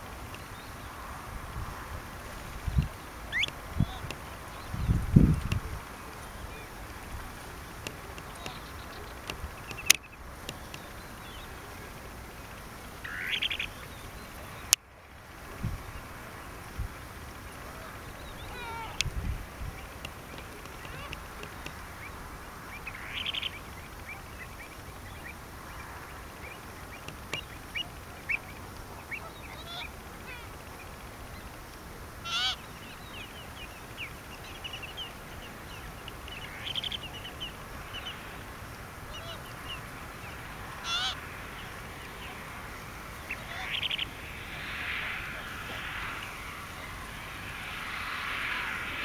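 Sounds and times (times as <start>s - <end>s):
soft flock calls: 0.0s - 49.0s
flamingo honking: 13.0s - 13.8s, 17.6s - 19.1s, 20.4s - 21.9s, 27.7s - 30.6s, 32.2s - 32.8s, 38.9s - 46.4s.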